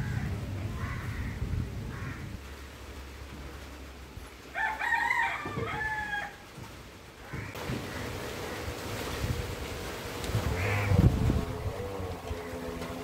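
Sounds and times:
rooster crowing: 4.6 - 6.4.

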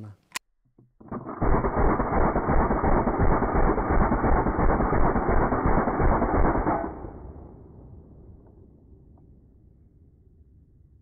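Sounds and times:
submachine gun automatic fire: 1.0 - 7.2
gunfire echo: 1.3 - 9.2.

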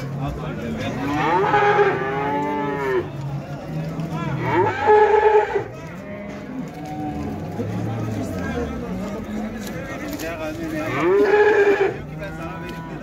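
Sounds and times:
cattle mooing: 0.9 - 3.1, 10.8 - 12.0.

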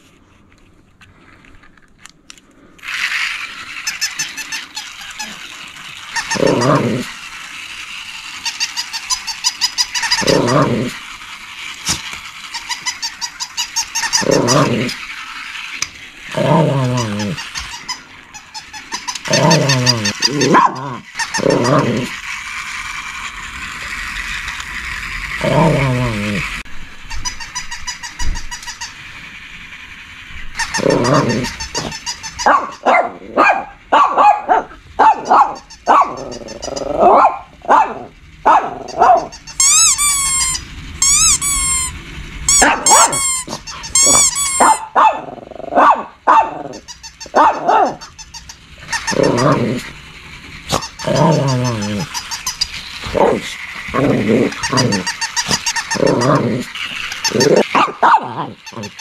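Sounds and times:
dog growling: 6.2 - 7.3, 10.1 - 11.1, 14.1 - 15.2, 16.2 - 17.8, 19.2 - 22.4, 25.3 - 26.6, 30.6 - 33.7, 34.4 - 39.3, 42.6 - 48.1, 48.8 - 50.0, 50.7 - 59.0
dog barking: 20.5 - 20.9, 32.5 - 36.2, 37.0 - 39.3, 42.6 - 43.2, 44.6 - 46.7, 47.3 - 48.0, 57.7 - 58.5.

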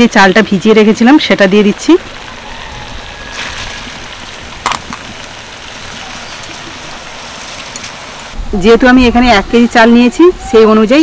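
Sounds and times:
pan sizzling: 0.0 - 8.3.

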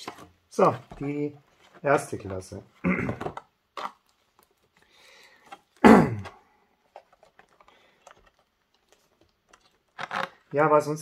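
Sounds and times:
plastic packaging rustling: 6.8 - 10.6.

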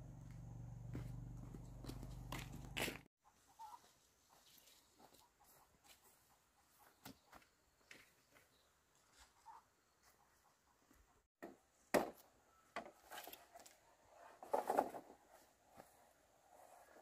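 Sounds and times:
bamboo poles knocking and scraping: 11.4 - 15.9.

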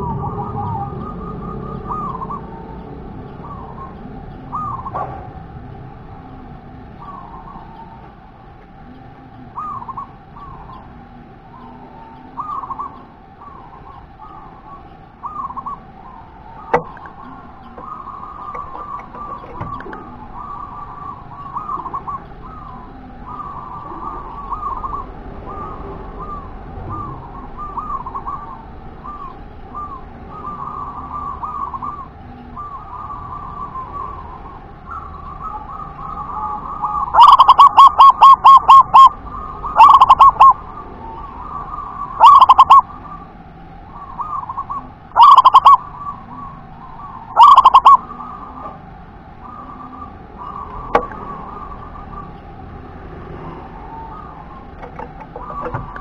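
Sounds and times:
dove cooing: 0.0 - 56.0.

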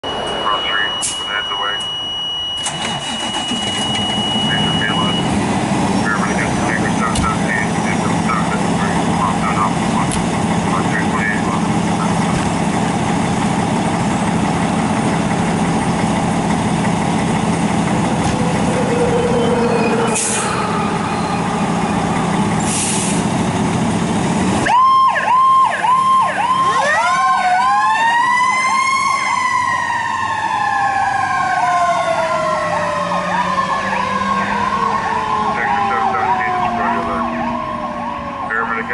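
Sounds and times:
electronic siren yelping: 0.0 - 5.3, 18.1 - 22.6, 24.6 - 38.9
wailing siren tone: 0.0 - 9.8, 17.8 - 22.8, 24.6 - 38.9
diesel engine running: 2.5 - 38.9.

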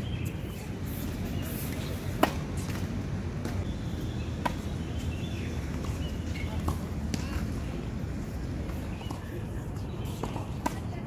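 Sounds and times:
tennis ball impacts: 1.2 - 3.7, 4.4 - 4.7, 5.7 - 7.8, 8.5 - 10.9.

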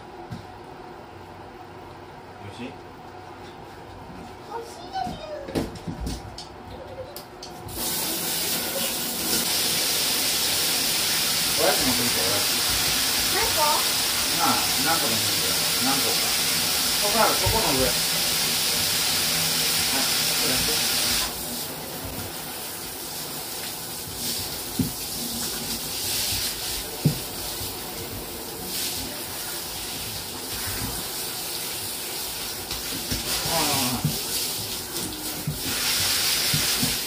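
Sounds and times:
shower head spraying water: 7.7 - 37.0.

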